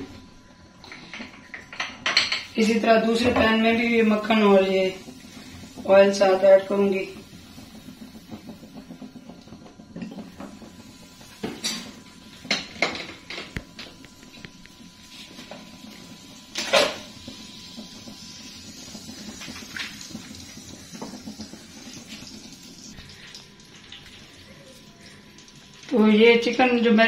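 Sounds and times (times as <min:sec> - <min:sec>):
oil hissing in frying pan: 0:02.4 - 0:27.0
metal pans and utensils clinking: 0:16.6 - 0:17.1.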